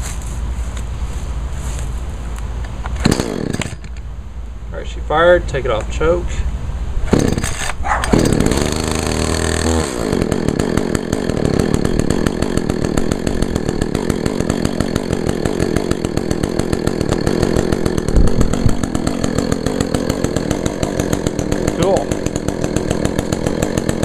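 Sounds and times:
chainsaw engine idling: 2.9s - 4.0s, 7.1s - 24.0s
recoil starter pull: 7.0s - 24.0s.

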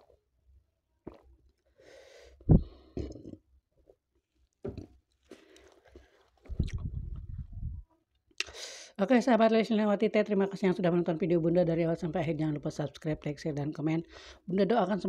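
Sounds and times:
swallowing: 1.0s - 1.4s, 2.6s - 3.4s, 5.6s - 7.7s
mouth clicks: 6.5s - 7.5s.

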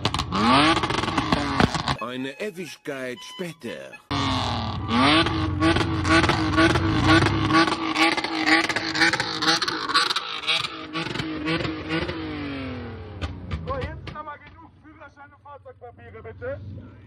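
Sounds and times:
car engine revving: 0.0s - 2.0s, 4.1s - 14.6s
exhaust crackles: 0.0s - 2.0s, 3.8s - 17.0s.

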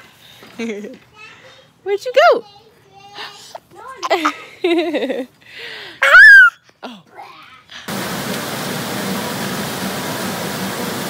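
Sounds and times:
toddler squealing: 6.0s - 6.6s.

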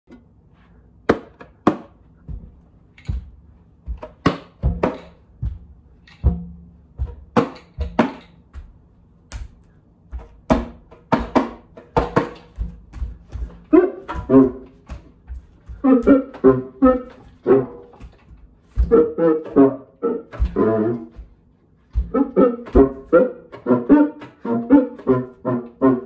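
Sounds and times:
friction drum knocks and thumps: 1.6s - 8.5s, 10.4s - 15.2s.

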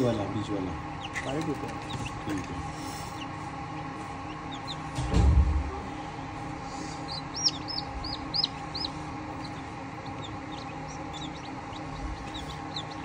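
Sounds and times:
incubator hum: 0.0s - 13.0s
chicks peeping: 0.8s - 13.0s
low thump: 4.9s - 5.8s.

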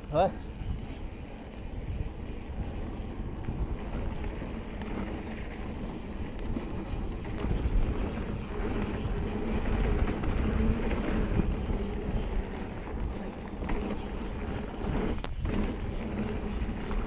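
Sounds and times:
bike tyres rumbling on dirt: 0.0s - 17.0s
wind buffeting microphone: 0.0s - 17.0s.

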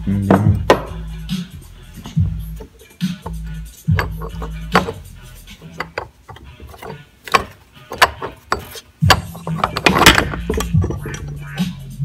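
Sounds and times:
metal clicks and clunks: 5.6s - 11.4s.

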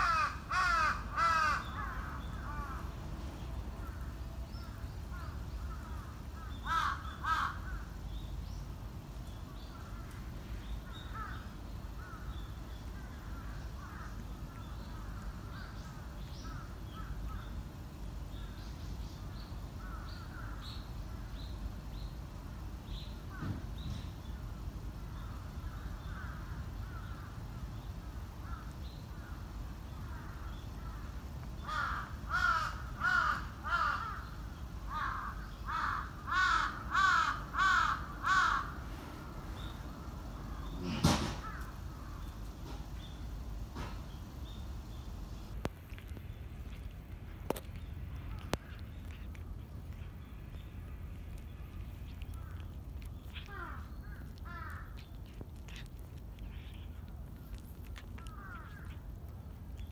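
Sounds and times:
crows cawing: 0.0s - 2.9s, 5.1s - 7.9s, 31.7s - 34.3s, 34.9s - 38.8s, 52.3s - 55.8s, 57.9s - 59.0s.

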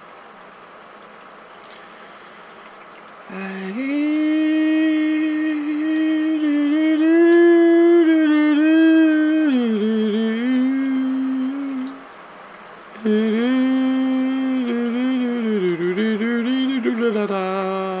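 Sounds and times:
man singing chant-like notes: 3.3s - 12.0s, 13.0s - 18.0s.

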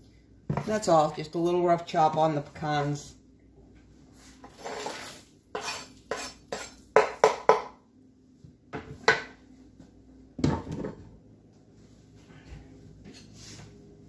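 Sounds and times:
cutting board knocking on metal pan: 7.0s - 7.8s.

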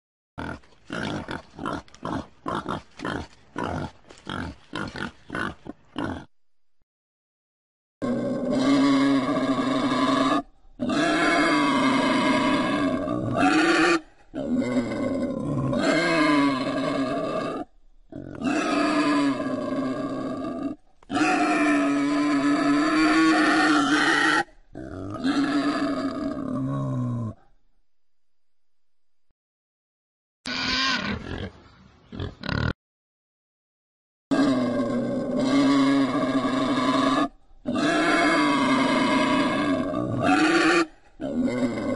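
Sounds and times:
wild boar cries: 8.0s - 27.4s, 30.5s - 31.5s, 34.3s - 41.9s.

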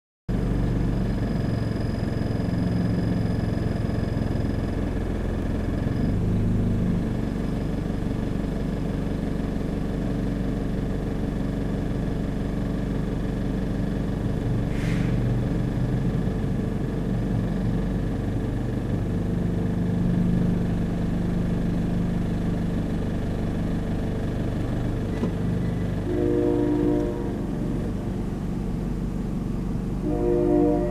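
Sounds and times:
car engine idling: 0.3s - 30.9s
train horn: 26.0s - 28.0s, 30.0s - 30.9s.

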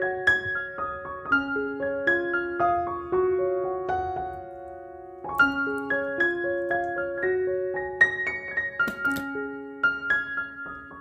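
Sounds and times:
slow piano melody: 0.0s - 11.0s.

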